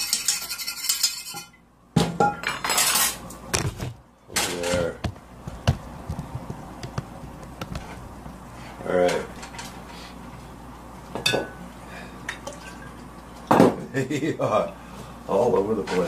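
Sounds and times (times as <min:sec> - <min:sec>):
utensils scraping skillet: 0:00.0 - 0:01.5, 0:02.6 - 0:03.3.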